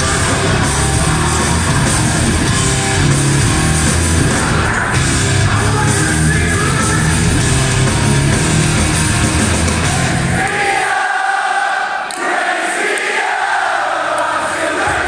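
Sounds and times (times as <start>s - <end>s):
live heavy metal band: 0.0s - 10.8s
crowd cheering and singing: 0.0s - 15.0s.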